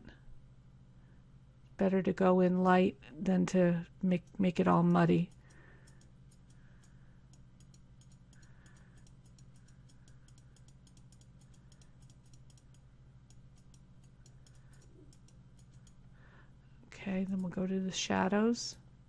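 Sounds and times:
low electrical hum: 0.0s - 19.0s
computer mouse clicking: 5.3s - 16.1s.

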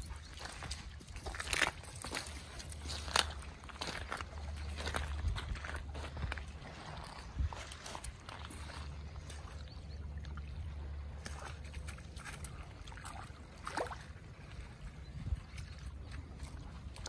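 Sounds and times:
paws stepping on wet seaweed: 0.0s - 14.8s
small waves lapping over rocks: 0.0s - 17.0s
wind rumble on microphone: 3.8s - 11.9s, 14.3s - 17.0s.

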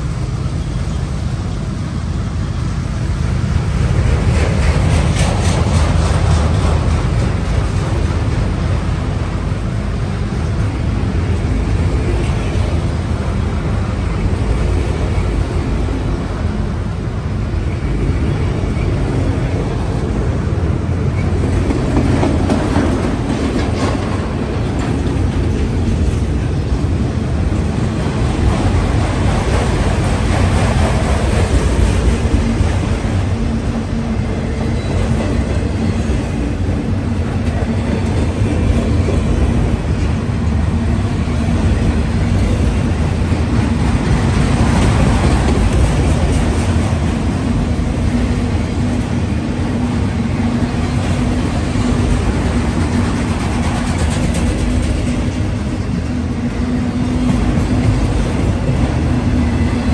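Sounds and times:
steel wheels on rails: 0.0s - 59.9s
faint clickety-clack: 3.9s - 8.6s, 21.2s - 26.3s, 51.0s - 56.1s.

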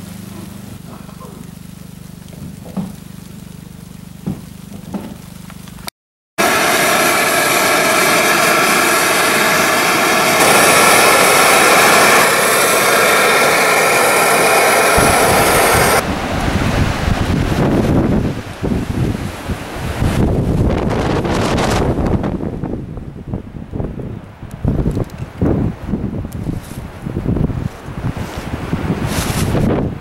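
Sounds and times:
strong wind blasting microphone: 6.4s - 30.0s.

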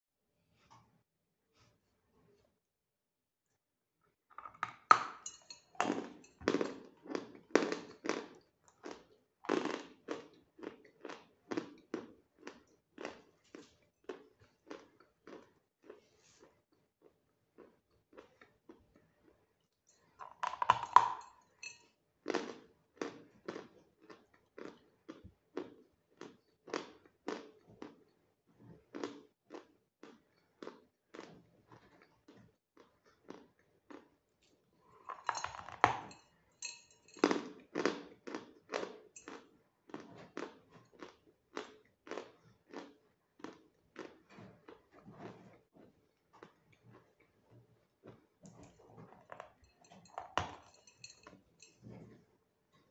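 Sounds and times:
crunchy chewing: 5.8s - 19.6s, 22.3s - 28.0s, 28.9s - 34.6s.

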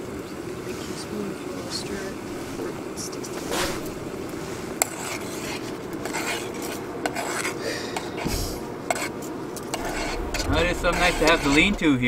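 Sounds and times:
spoon scraping pot: 8.9s - 11.8s.

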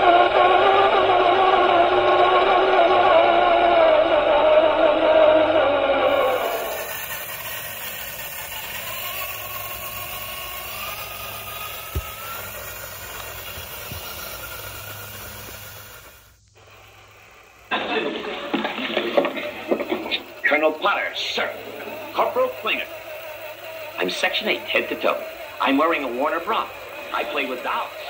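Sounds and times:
small electric motor whining: 0.0s - 28.0s
rough rattling: 6.1s - 28.0s.

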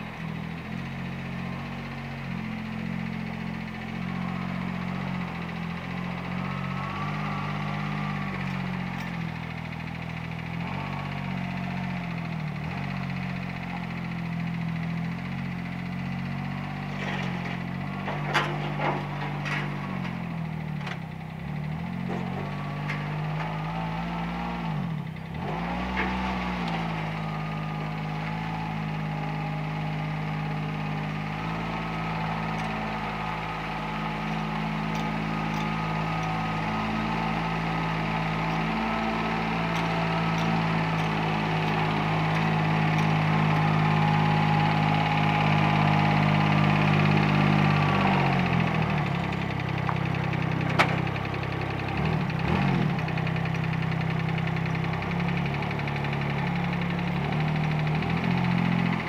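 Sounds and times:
vehicle engine running: 0.0s - 59.0s.

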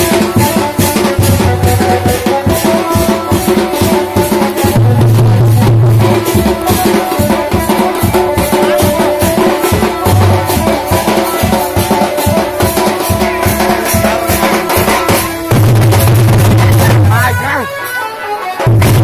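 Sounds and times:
fast driving drumming: 0.0s - 17.8s, 18.6s - 19.0s
procession band music: 0.0s - 19.0s.

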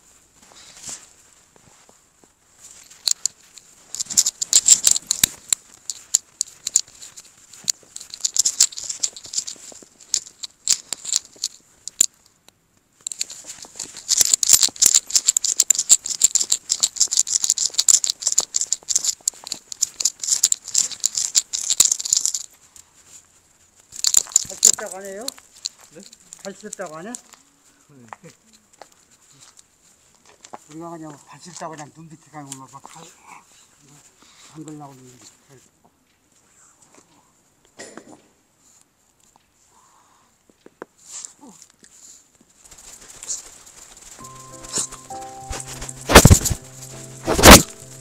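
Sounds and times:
footsteps crunching through snow: 0.0s - 10.4s, 42.7s - 48.0s.

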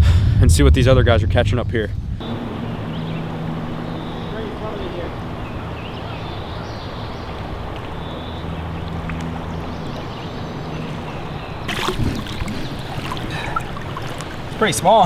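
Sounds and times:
creek water rushing: 2.2s - 15.0s
fish splashing at surface: 11.7s - 14.6s.

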